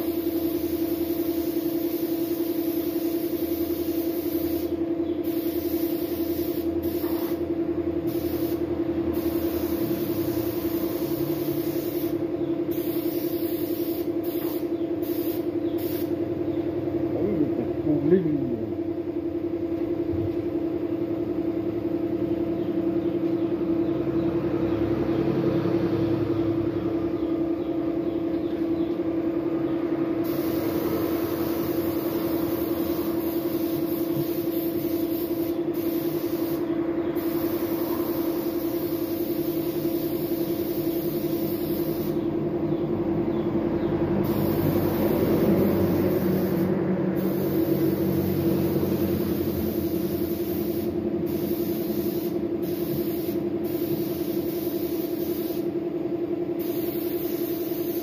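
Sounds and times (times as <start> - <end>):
paint spray gun hissing: 0.0 - 16.2, 30.2 - 42.3, 44.2 - 55.8, 56.6 - 58.0
air compressor humming: 0.0 - 58.0.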